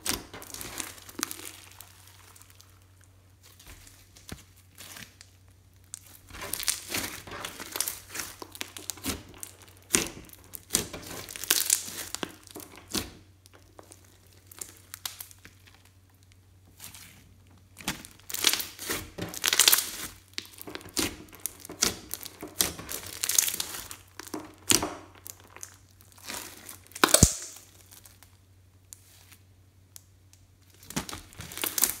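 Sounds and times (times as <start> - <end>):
sticky slime crackling and tearing: 0.0 - 29.4, 30.6 - 32.0
slime snapping: 26.9 - 27.6.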